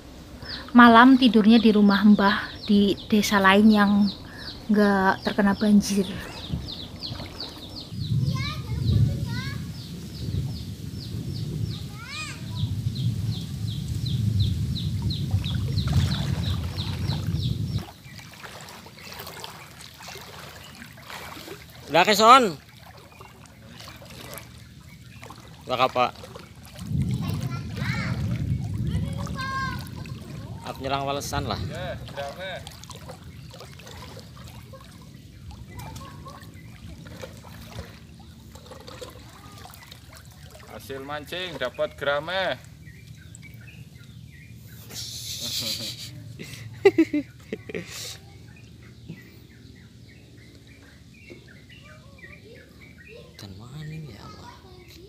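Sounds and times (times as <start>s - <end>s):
low rumble: 0.0s - 17.9s, 26.2s - 33.4s
water sloshing: 0.0s - 44.8s
floodwater trickling and lapping: 0.0s - 55.0s
bird chirping: 0.4s - 26.7s, 27.7s - 55.0s.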